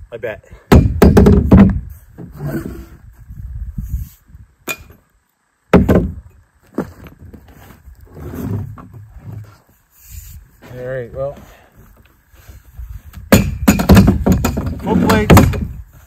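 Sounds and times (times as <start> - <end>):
rustling and scraping: 1.8 - 4.3, 6.6 - 13.3.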